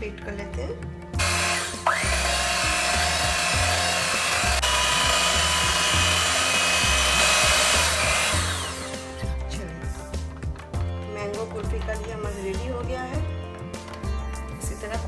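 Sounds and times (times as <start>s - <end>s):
background music with steady beat: 0.0s - 15.0s
electric hand mixer whisking: 1.2s - 9.3s.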